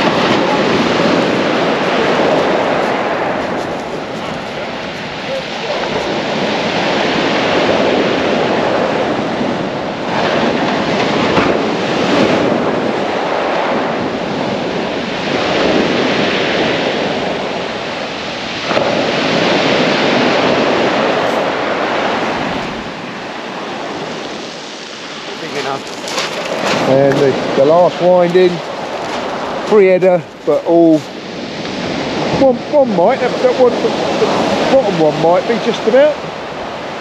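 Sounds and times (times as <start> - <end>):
surf breaking on shingle: 0.0 - 8.5, 18.6 - 22.8, 25.4 - 30.5.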